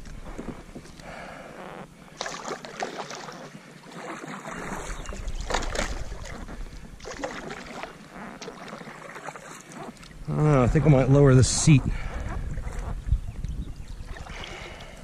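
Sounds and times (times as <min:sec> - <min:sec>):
kayak paddle splashing in water: 0:00.2 - 0:10.6.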